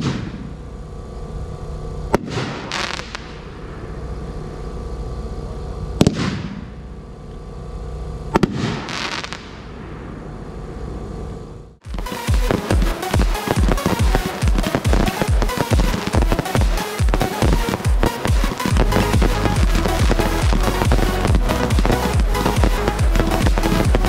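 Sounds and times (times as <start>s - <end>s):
firework bangs: 0.0s - 0.6s, 2.1s - 3.7s, 6.0s - 6.8s, 8.3s - 10.4s, 11.8s - 24.0s
firework crackling: 2.1s - 4.8s, 8.3s - 11.0s, 11.8s - 24.0s.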